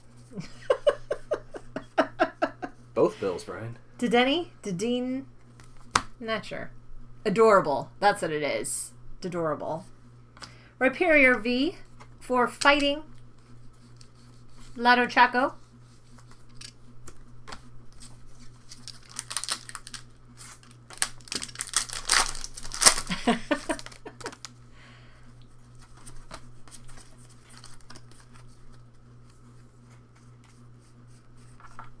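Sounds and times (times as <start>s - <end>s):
cards rustling and clicking: 16.0s - 24.6s, 25.6s - 30.6s
foil pack tearing and crinkling: 17.9s - 24.6s.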